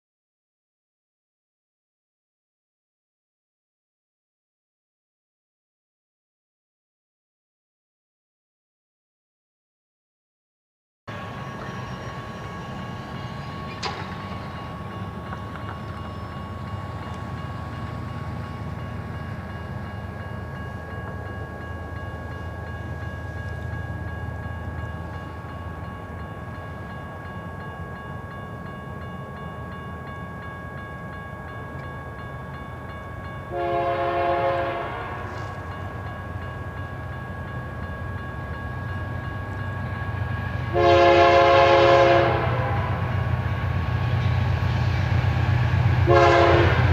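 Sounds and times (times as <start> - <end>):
steady high ringing tone: 11.1 - 33.9
locomotive air horn: 33.5 - 35.6, 40.7 - 43.1, 46.0 - 46.9.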